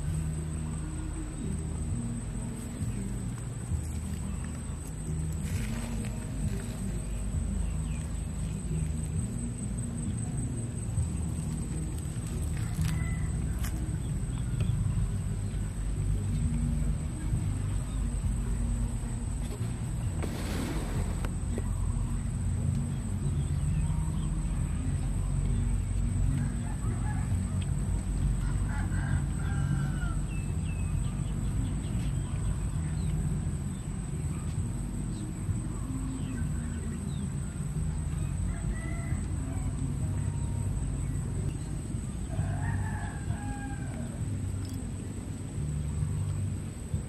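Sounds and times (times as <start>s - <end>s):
steady low rumble: 0.0s - 47.0s
rooster crowing: 12.5s - 13.8s, 26.4s - 27.8s, 28.4s - 30.7s, 38.4s - 39.9s, 42.2s - 44.4s.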